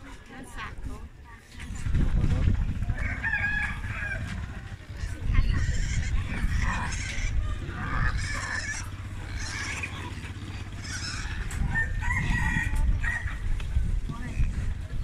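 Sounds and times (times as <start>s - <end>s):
piglets squealing: 4.9s - 13.3s.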